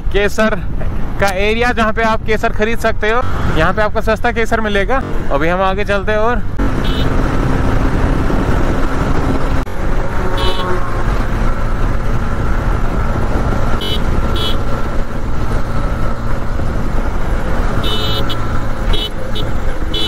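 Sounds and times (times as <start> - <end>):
motorcycle engine riding: 5.0 - 20.0.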